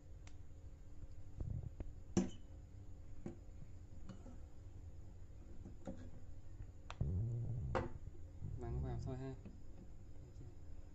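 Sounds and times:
low handling rumble: 0:07.0 - 0:09.5.

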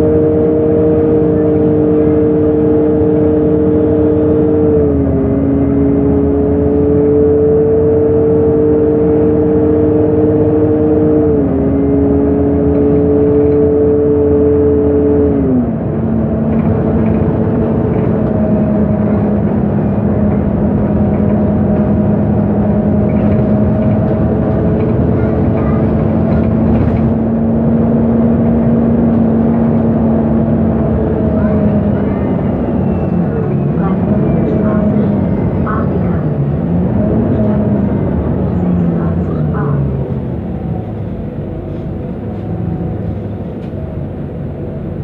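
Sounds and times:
bus engine whine: 0:00.0 - 0:45.0
road noise: 0:00.0 - 0:45.0.

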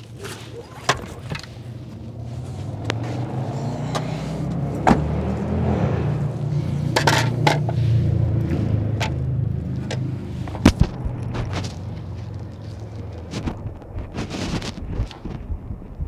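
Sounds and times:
shoe scuffs: 0:00.1 - 0:05.5.

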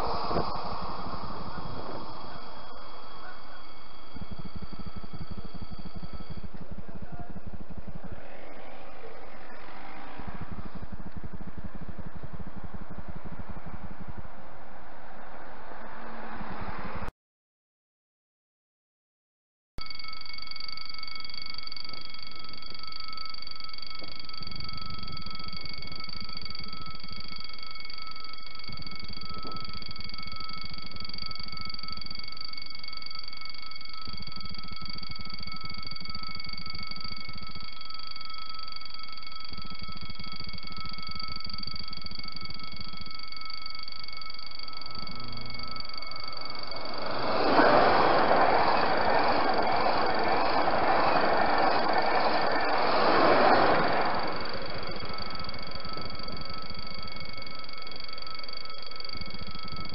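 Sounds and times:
low rumble: 0:00.0 - 0:17.1, 0:24.0 - 0:59.9
rush of approaching train: 0:00.0 - 0:17.1, 0:44.8 - 0:57.8.

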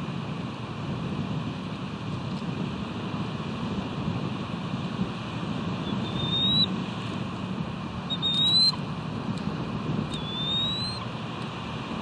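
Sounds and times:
bird's thin high whistle: 0:05.9 - 0:06.7, 0:08.1 - 0:08.8, 0:10.1 - 0:11.0.

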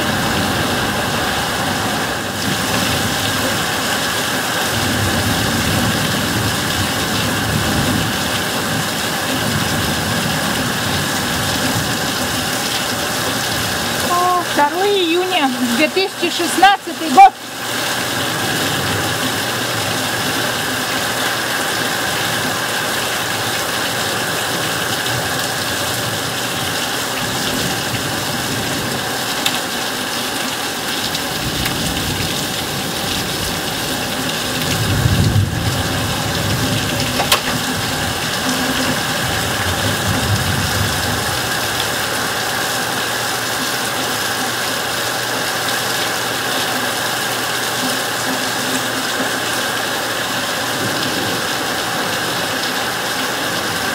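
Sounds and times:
heavy rain on leaves: 0:00.0 - 0:53.9
thunder rumble: 0:31.3 - 0:41.4.

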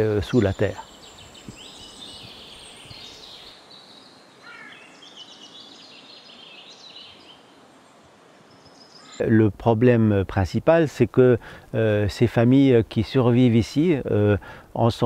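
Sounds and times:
birds chirping and trilling: 0:00.0 - 0:09.4
faint outdoor hiss: 0:00.0 - 0:15.0.

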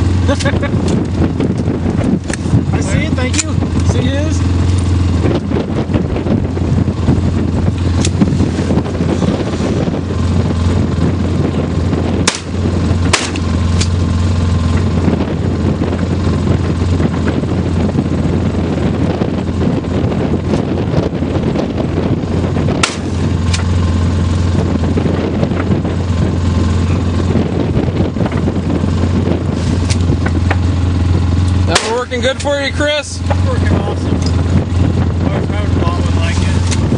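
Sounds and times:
vehicle engine humming: 0:00.0 - 0:36.9
gunshots: 0:12.2 - 0:13.4, 0:22.8 - 0:23.6, 0:31.7 - 0:32.1.

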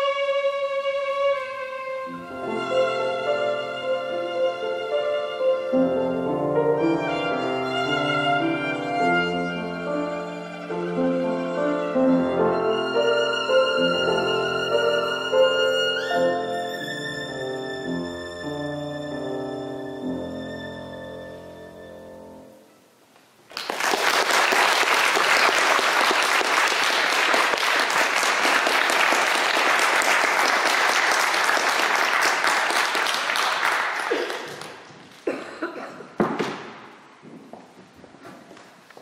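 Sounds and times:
violin and piano chord: 0:00.0 - 0:22.6
audience applause: 0:23.5 - 0:34.9
sharp knocks: 0:36.2 - 0:37.0.

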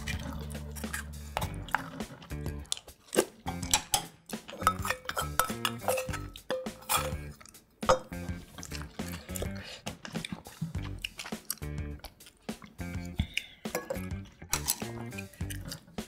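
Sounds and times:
cutlery clinking on dishes: 0:03.5 - 0:07.3, 0:13.7 - 0:15.0.

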